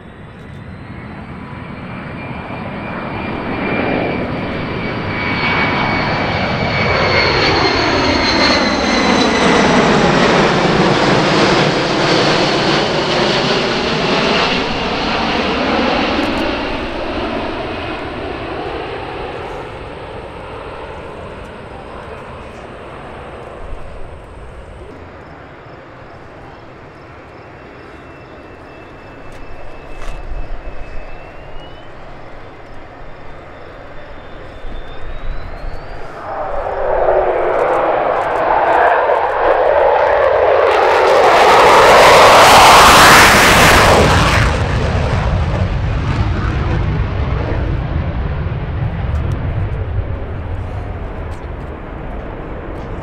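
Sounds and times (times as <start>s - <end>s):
fighter jet low pass: 0.0s - 53.0s.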